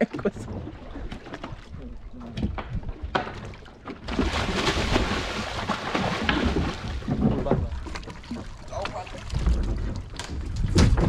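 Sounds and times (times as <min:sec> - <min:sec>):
fish thrashing in splashing water: 0:03.2 - 0:11.0.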